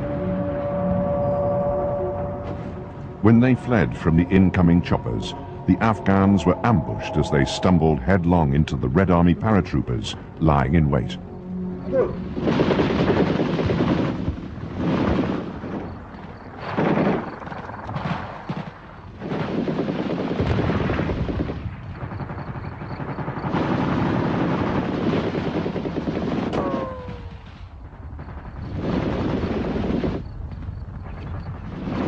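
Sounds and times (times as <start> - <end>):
falling whine: 0.0 - 13.8.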